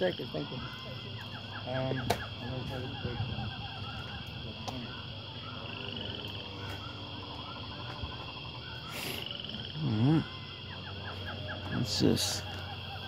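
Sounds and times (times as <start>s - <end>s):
birds chirping and trilling: 0.0s - 13.0s
insect drone: 0.0s - 13.0s.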